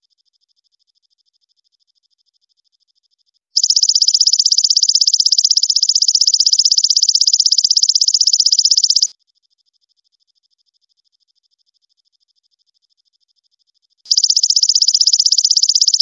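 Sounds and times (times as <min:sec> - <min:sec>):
faint steady insect trill: 0:00.0 - 0:16.0
katydid buzzing trill: 0:03.6 - 0:09.1, 0:14.1 - 0:16.0.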